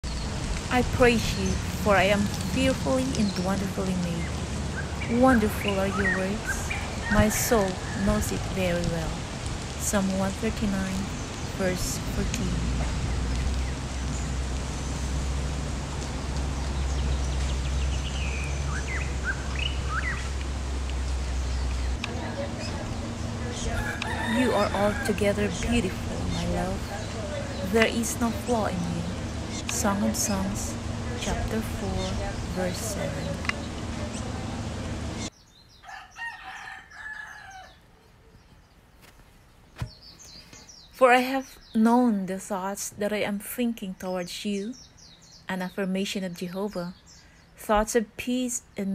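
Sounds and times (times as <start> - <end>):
low rumble: 0.0 - 35.3
steady rushing noise: 0.0 - 35.3
birds chirping: 0.0 - 48.9
rooster crowing: 23.4 - 25.6, 35.8 - 38.0.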